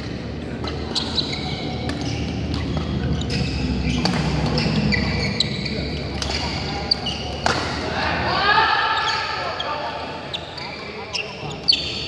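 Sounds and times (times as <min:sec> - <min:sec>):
shoes squeaking on court mat: 0:00.7 - 0:07.8, 0:09.0 - 0:12.0
rackets hitting shuttlecock: 0:01.7 - 0:04.7, 0:07.2 - 0:07.9.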